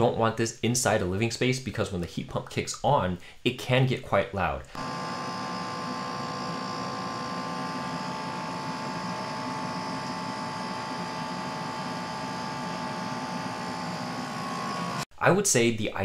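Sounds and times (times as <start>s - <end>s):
fan and compressor hum: 4.8s - 15.0s
steady high tone: 4.8s - 15.1s.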